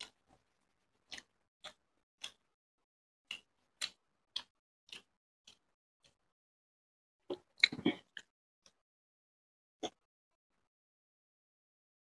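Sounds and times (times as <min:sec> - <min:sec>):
person chewing: 0:01.0 - 0:02.5, 0:03.3 - 0:06.2.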